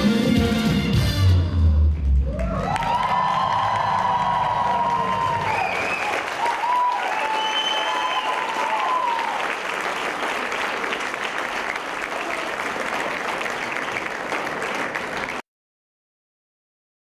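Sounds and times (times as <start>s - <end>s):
audience applauding: 2.2s - 15.4s.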